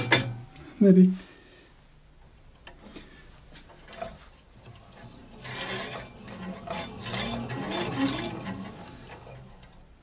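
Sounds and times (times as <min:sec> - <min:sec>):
bandsaw blade rasping: 0:05.0 - 0:09.5.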